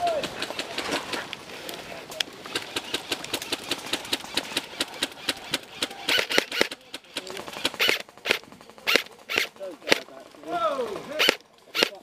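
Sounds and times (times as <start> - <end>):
airsoft guns firing: 2.4 - 10.1, 11.1 - 12.0.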